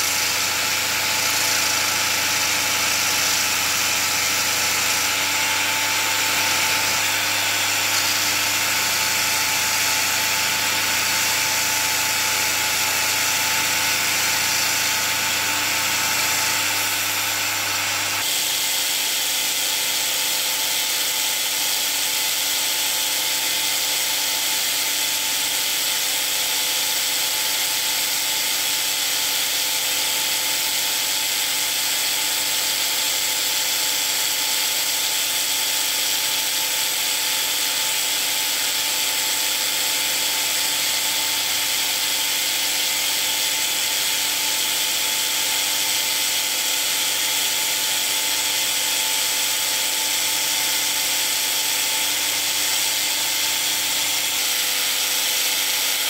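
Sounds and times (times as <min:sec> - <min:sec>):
power sander whining: 0:00.0 - 0:56.0
sandpaper hissing on wood: 0:00.0 - 0:56.0.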